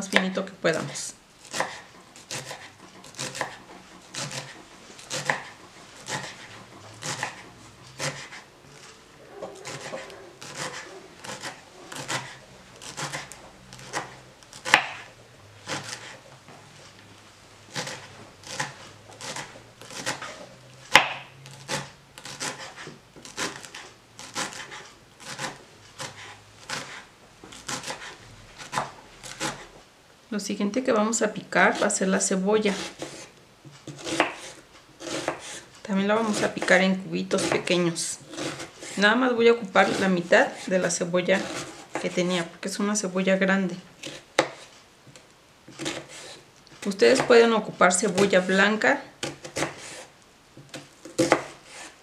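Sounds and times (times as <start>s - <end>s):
knife chopping on wooden board: 1.4s - 8.5s, 9.4s - 15.1s, 15.7s - 16.2s, 17.7s - 29.7s, 32.7s - 35.6s, 37.4s - 39.0s, 44.0s - 44.7s, 45.8s - 46.4s, 49.2s - 51.9s.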